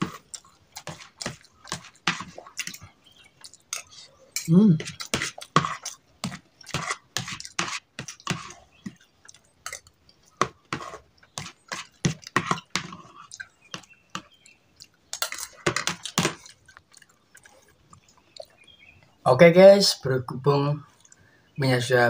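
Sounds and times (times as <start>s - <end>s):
close-up chewing: 0.0s - 19.2s, 20.9s - 21.4s
cutlery scraping on a plate: 3.8s - 8.6s.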